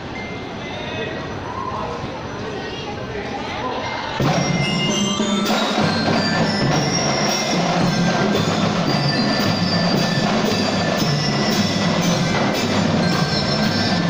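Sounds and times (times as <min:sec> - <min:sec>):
bell lyres melody: 0:04.2 - 0:14.0
snare and bass drums beating: 0:04.2 - 0:14.0.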